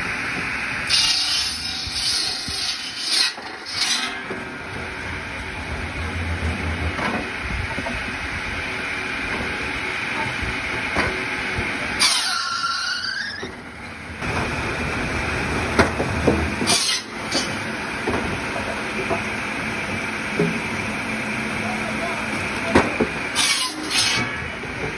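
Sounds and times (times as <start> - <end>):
wood chipper cutting log: 0.0 - 24.9
high falling squeal: 12.0 - 13.6.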